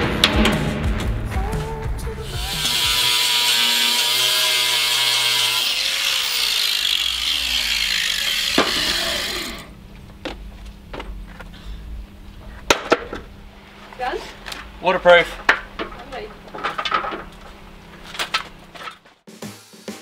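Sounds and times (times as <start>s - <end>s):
angle grinder grinding steel: 2.2s - 9.7s.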